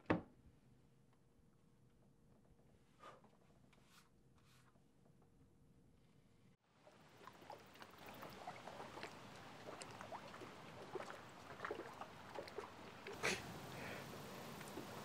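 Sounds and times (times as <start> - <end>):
lake water lapping at shore: 6.7 - 15.0.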